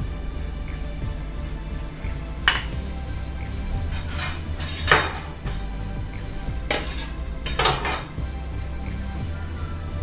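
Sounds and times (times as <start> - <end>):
background music: 0.0 - 10.0
steel utensils clattering on plate: 2.5 - 2.8, 3.8 - 5.7, 6.7 - 8.2.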